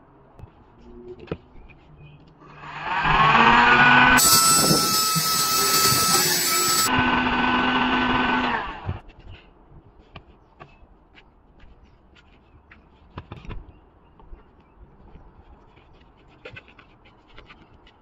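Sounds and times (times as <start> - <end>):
heat gun blowing: 2.6 - 9.0.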